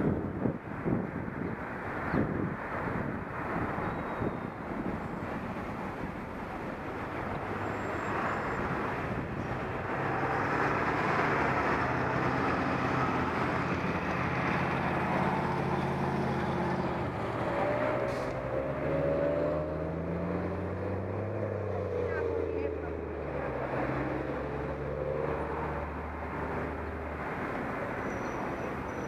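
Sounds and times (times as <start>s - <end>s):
road noise: 0.0s - 29.0s.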